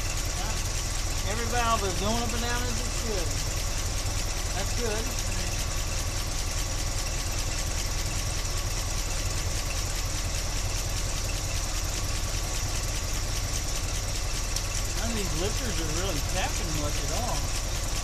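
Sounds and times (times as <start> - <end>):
car engine idling: 0.0 - 18.0.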